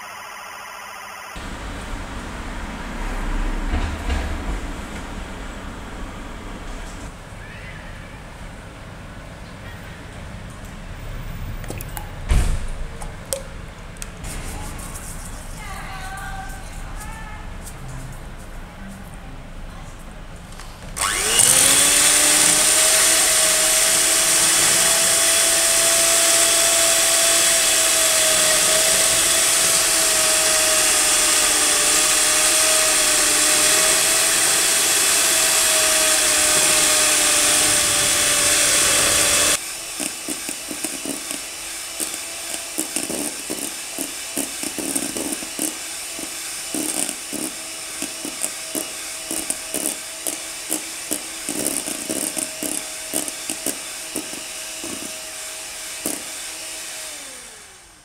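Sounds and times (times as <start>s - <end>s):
beaters clicking: 21.0s - 55.2s
electric mixer whining: 21.0s - 58.0s.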